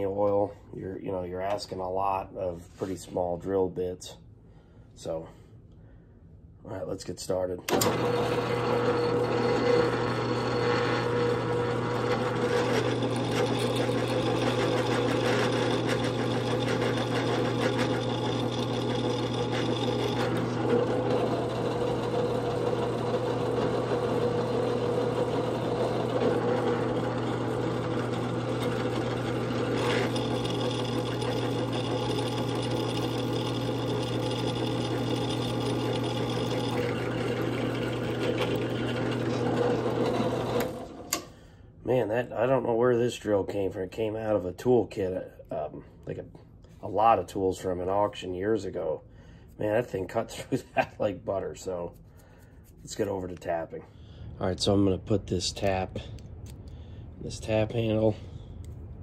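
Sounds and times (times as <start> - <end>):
drill press drilling metal: 7.7 - 41.3.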